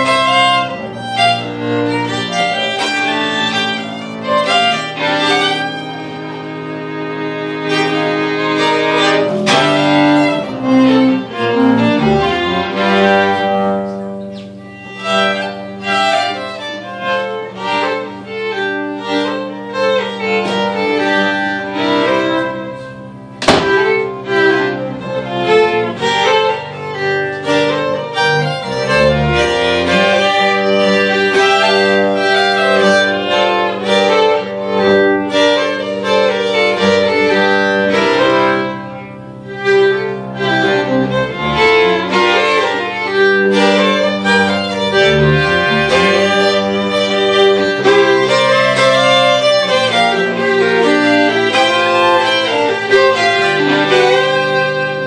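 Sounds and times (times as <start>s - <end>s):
bowed upright bass: 0.0s - 55.0s
fiddles playing: 0.0s - 55.0s
sharp knock: 23.4s - 24.1s.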